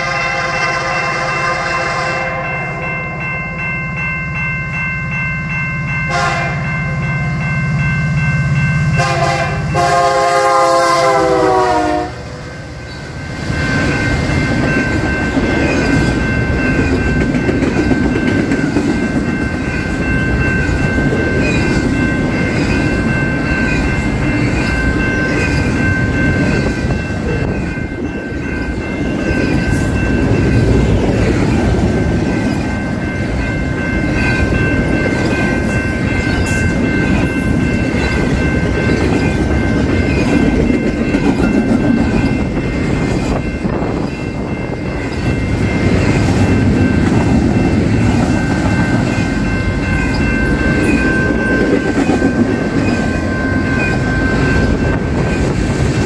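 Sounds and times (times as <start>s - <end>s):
train horn blasts: 0.0s - 2.8s, 6.1s - 6.7s, 9.0s - 12.4s
train wheels rumbling on rails: 4.7s - 56.0s.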